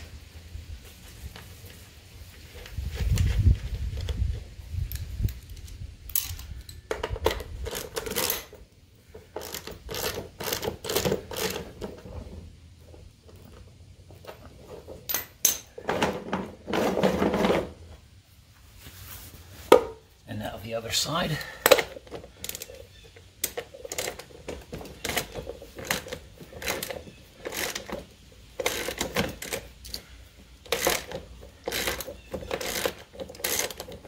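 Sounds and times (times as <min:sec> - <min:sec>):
plastic wheel clicking and rattling: 0:09.2 - 0:12.0, 0:21.7 - 0:30.0, 0:30.6 - 0:34.0.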